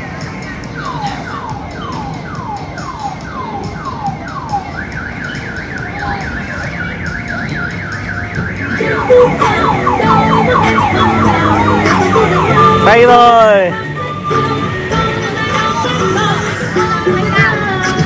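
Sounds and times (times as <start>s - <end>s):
electronic siren: 0.8s - 15.1s.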